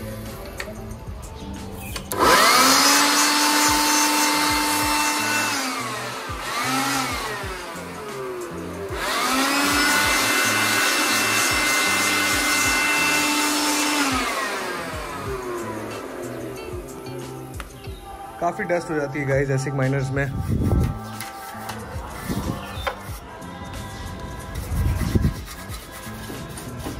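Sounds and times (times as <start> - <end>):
electric air blower motor whining: 1.9 - 21.1.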